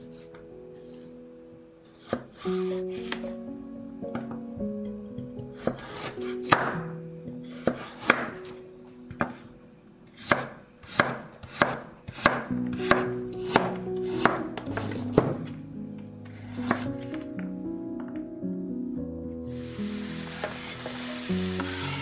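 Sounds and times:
soft background music: 0.0 - 22.0
knife chopping on wooden board: 5.6 - 6.8, 7.5 - 8.3, 10.2 - 15.5, 16.3 - 16.9.

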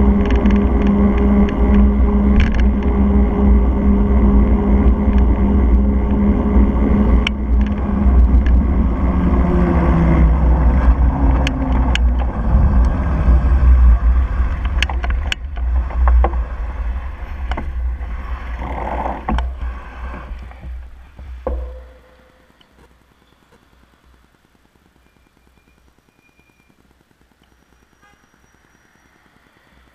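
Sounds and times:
sharp clicks and knocks: 0.0 - 8.9, 10.3 - 13.0, 14.4 - 23.6
wind buffeting: 0.0 - 21.9
low hum falling in pitch: 0.0 - 22.8
bicycle road noise: 0.0 - 29.9.

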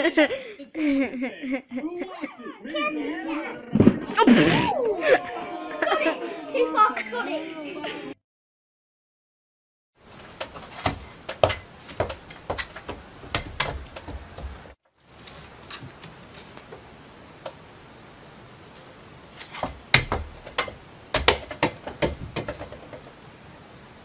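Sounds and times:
cat pawing at toy hoop: 10.1 - 16.9, 19.4 - 23.1.

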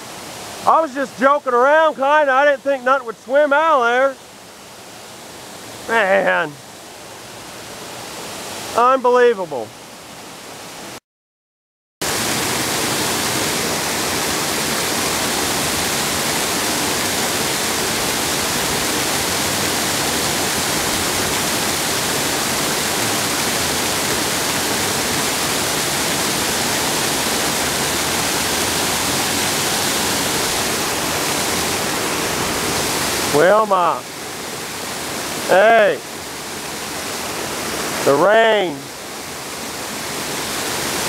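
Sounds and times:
water pouring over dam: 0.0 - 6.5, 12.0 - 41.0.

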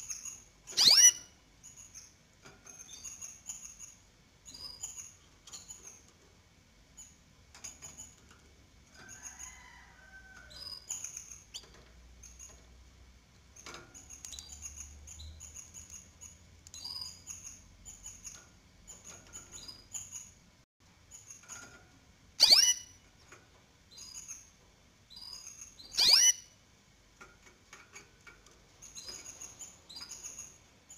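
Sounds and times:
nestlings begging peeps: 0.0 - 2.1, 22.4 - 23.0, 25.1 - 26.6.

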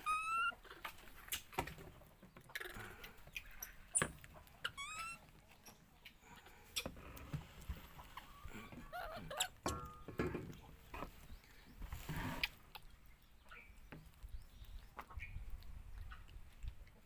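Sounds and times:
baby monkey squealing: 0.0 - 0.8, 3.9 - 5.3, 8.9 - 9.7.

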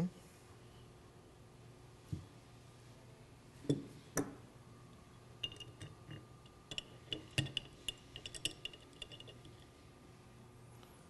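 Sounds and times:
wrenches clinking on metal: 5.4 - 9.5.

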